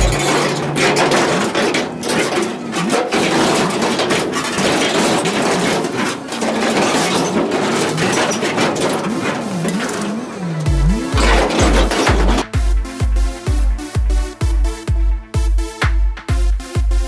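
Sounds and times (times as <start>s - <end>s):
metal clanks: 0.0s - 13.1s
metal groaning: 0.0s - 13.6s
sheet metal grinding and crunching: 0.0s - 14.1s.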